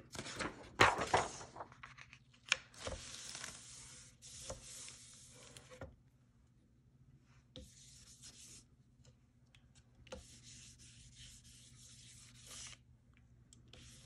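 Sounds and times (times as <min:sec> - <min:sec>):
paper and parchment rustling: 0:00.1 - 0:04.2
hands rubbing paper: 0:10.2 - 0:12.8.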